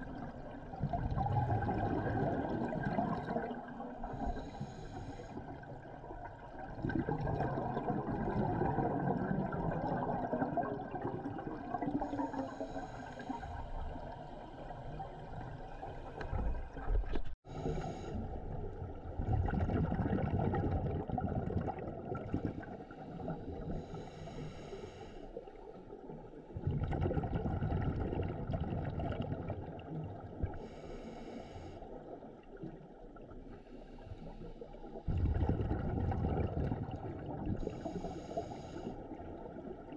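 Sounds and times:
bubbling exhalations underwater: 0.0s - 4.0s, 6.6s - 12.1s, 19.1s - 22.7s, 26.6s - 29.9s, 35.1s - 37.7s
hissing regulator inhalations: 12.1s - 13.8s, 37.6s - 39.1s.

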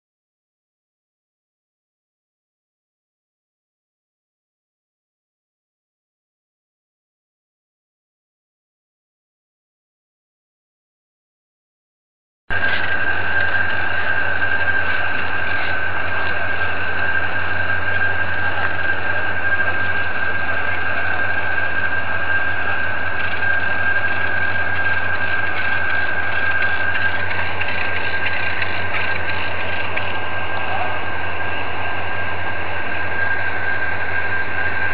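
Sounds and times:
diesel engine running: 12.5s - 34.9s
high-pitched whine: 12.5s - 34.9s.

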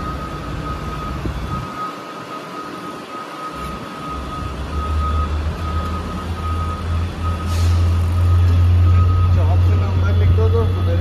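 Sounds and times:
heavy vehicle engine humming: 0.0s - 11.0s
reversing beeper: 0.0s - 11.0s
brief hiss: 7.4s - 8.0s.

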